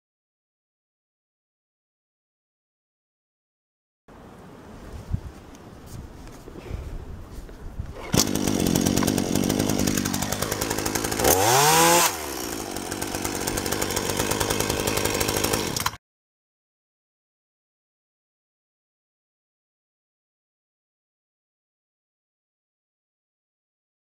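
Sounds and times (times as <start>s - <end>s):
chainsaw pull-started and running: 7.9s - 16.0s.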